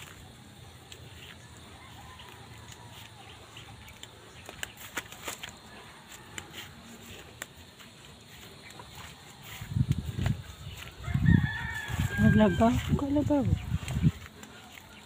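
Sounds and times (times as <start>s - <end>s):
light clicks and crackles: 2.2s - 7.9s
distant rooster crowing: 5.4s - 7.2s, 8.9s - 13.0s.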